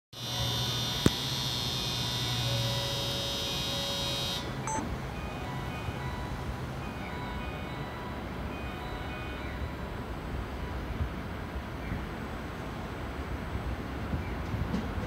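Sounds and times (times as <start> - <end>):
short beep: 0.2 - 4.9
electronic departure bell ringing: 0.2 - 9.9.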